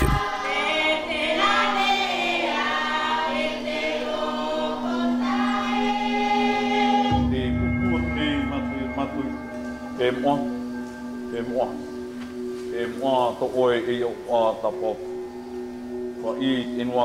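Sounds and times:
congregation singing a hymn: 0.2 - 15.1
low rumble: 7.1 - 11.3
low held note: 7.1 - 16.0.

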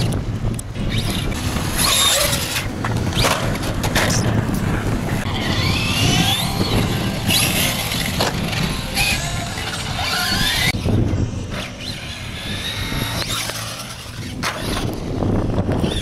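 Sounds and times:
electric motor whine: 5.0 - 16.0.

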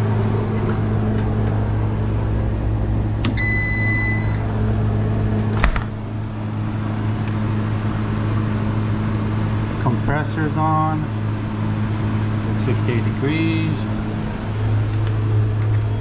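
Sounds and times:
steady low hum: 0.0 - 16.0
refrigerator controller beep: 3.2 - 4.5.

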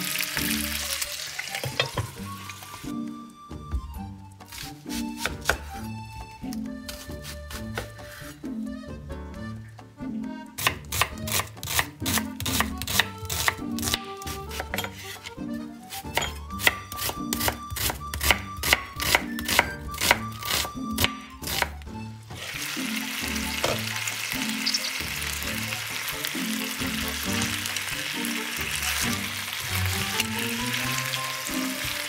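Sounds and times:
chicken sizzling in a frying pan: 0.0 - 2.9, 22.4 - 32.0
knife slicing onion on board: 4.5 - 8.5, 10.6 - 21.8.

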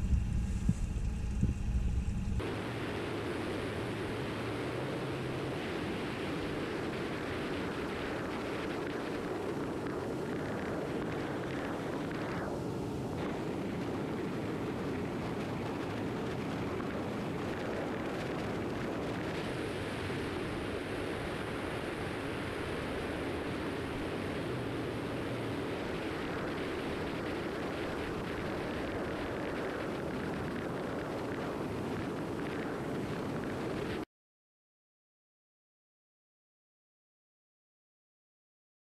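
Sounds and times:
boat motor running: 0.0 - 5.0
motorboat engine running: 0.0 - 12.2
wind: 0.0 - 34.0.

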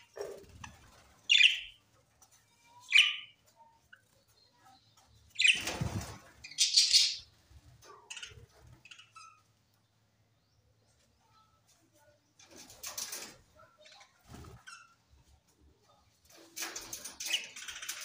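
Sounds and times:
wings fluttering: 0.0 - 2.4, 5.0 - 9.2, 12.4 - 13.5, 14.2 - 15.3
budgerigars chirping: 1.3 - 1.8, 6.4 - 7.3.

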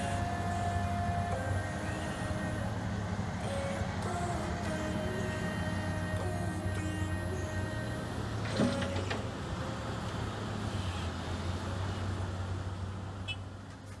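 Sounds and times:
excavator diesel engine running: 0.0 - 14.0
earth dropping into steel truck bed: 8.4 - 9.2.

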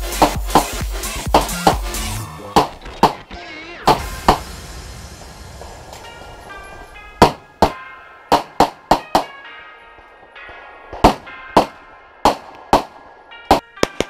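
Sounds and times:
pistol shots: 10.9 - 14.0.

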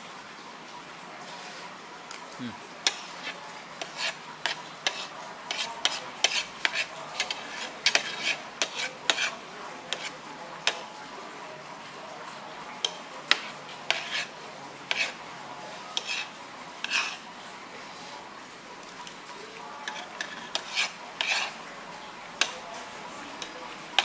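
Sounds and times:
metal utensils clinking on dishes: 2.8 - 10.9, 12.8 - 15.2, 15.9 - 17.2, 18.8 - 21.6, 22.4 - 24.0.

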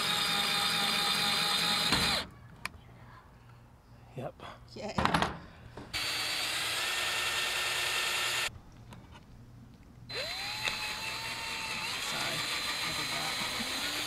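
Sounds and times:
cordless drill boring into wood: 0.0 - 2.2, 6.0 - 8.5, 10.1 - 14.0.

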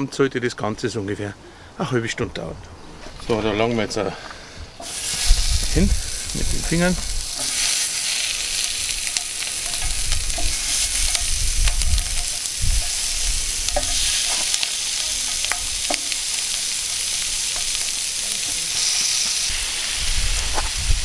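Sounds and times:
chicken wings sizzling on grill: 4.8 - 21.0.

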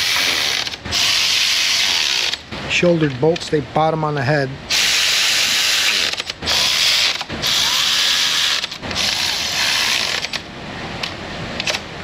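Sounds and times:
power ratchet running bolts: 0.0 - 2.4, 4.7 - 10.4.

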